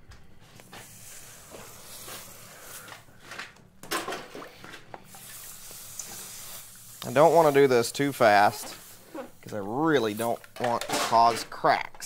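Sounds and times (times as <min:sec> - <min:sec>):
water hissing on hot steel: 0:05.1 - 0:09.5.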